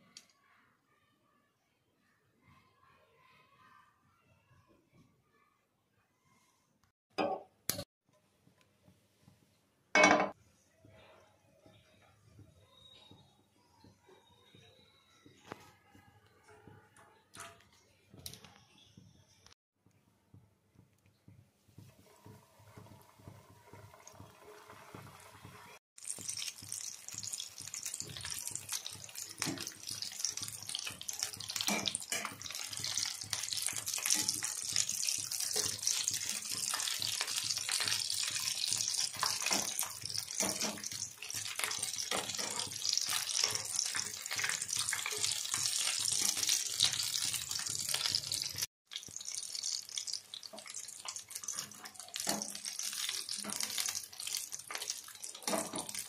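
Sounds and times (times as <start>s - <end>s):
oil sizzling and crackling: 21.3s - 56.0s.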